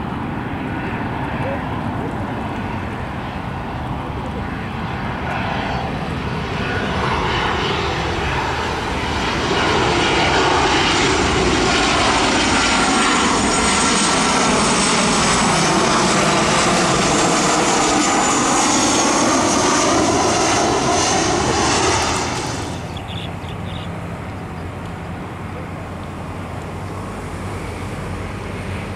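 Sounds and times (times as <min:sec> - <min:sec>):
jet engines passing overhead: 0:00.0 - 0:28.9.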